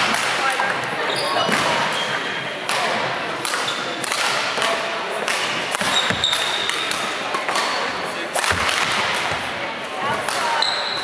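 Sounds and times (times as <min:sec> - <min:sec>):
background hubbub: 0:00.0 - 0:11.0
rackets striking shuttlecocks: 0:02.6 - 0:09.5
shoes squeaking on wooden floor: 0:05.9 - 0:06.7.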